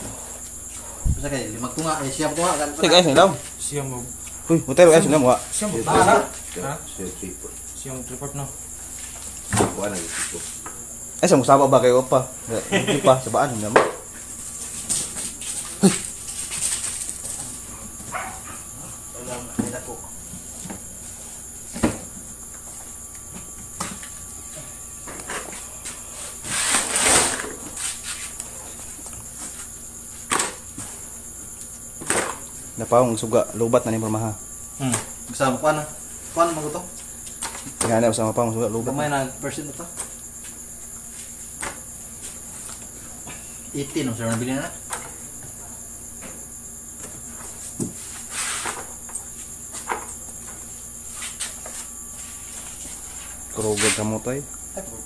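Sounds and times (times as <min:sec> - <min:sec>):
crickets chirring: 0:00.0 - 0:55.0.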